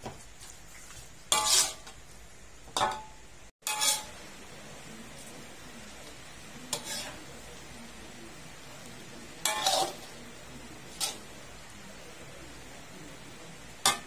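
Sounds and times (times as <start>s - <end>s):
frying sizzle: 0.0s - 14.0s
utensil scraping metal pan: 1.3s - 2.0s, 3.6s - 4.2s, 6.7s - 7.3s, 9.4s - 10.2s, 10.8s - 11.3s.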